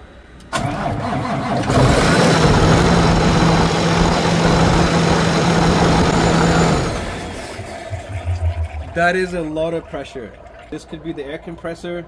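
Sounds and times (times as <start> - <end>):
low hum: 6.7 - 11.0.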